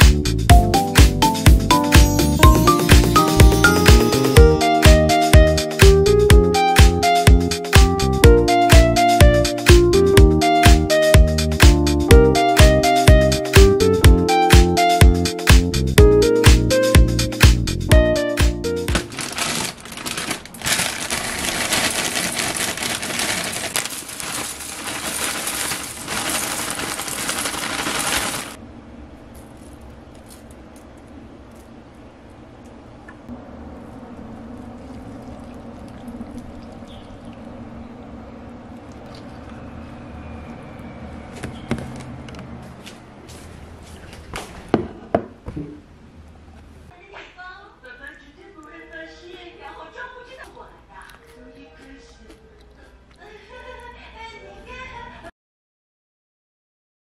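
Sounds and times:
cereal pattering into glass mug: 18.9s - 28.6s
plastic bag rustling: 18.9s - 28.6s
low steady hum: 28.6s - 41.4s.

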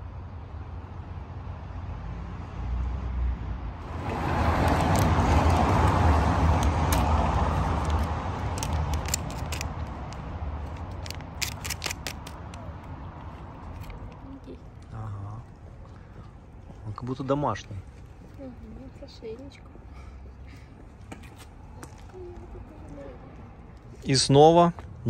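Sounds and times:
car passing by: 1.2s - 10.7s
plastic pouch crackling: 4.3s - 12.7s.

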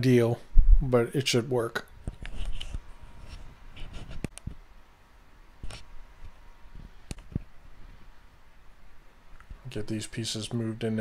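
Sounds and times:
soft rustle of pipe handling: 2.1s - 4.3s.

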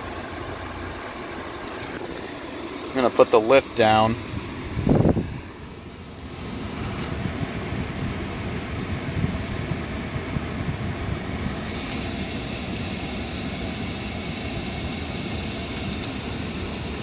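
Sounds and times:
car engine idling rumble: 0.0s - 17.0s
suspension lowering hiss: 0.0s - 17.0s.

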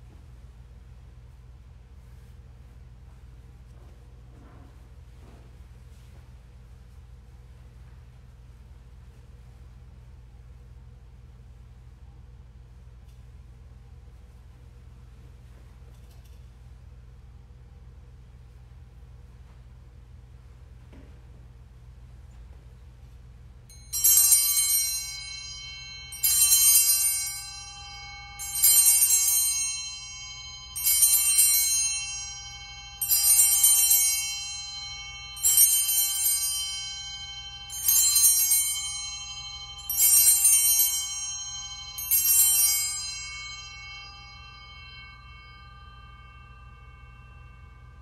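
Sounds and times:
altar bell ringing: 23.7s - 48.0s.

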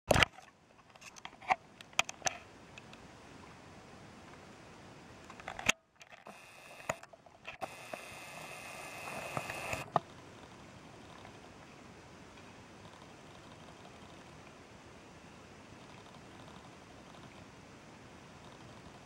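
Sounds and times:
clicks and knocks on camera: 0.1s - 3.0s, 5.3s - 8.1s, 9.0s - 10.1s
faint hiss: 1.6s - 19.0s
thin steady tone: 6.2s - 11.7s.

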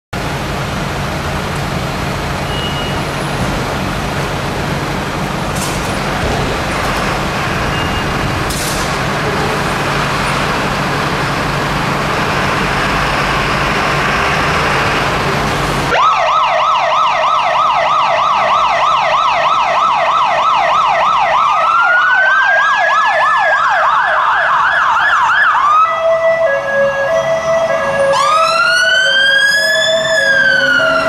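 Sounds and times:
diesel engines idling: 0.2s - 16.6s, 24.3s - 31.0s.

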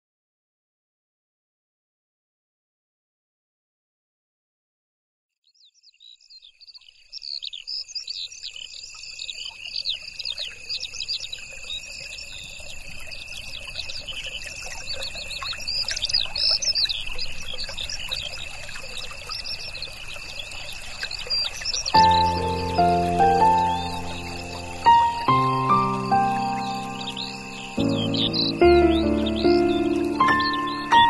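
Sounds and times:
birds chirping and trilling: 5.5s - 31.0s
high insect drone: 7.5s - 31.0s.

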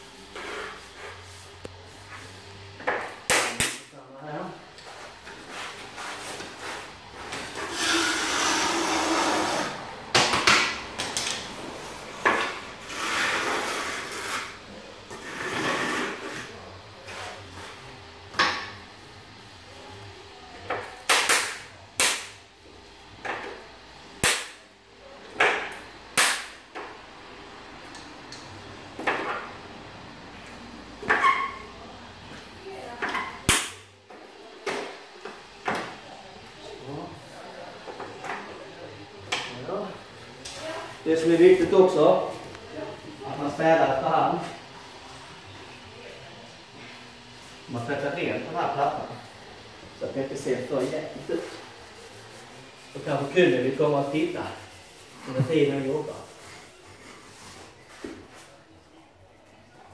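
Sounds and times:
scraping at tile edge: 0.3s - 1.5s, 7.5s - 9.8s, 12.4s - 17.8s.

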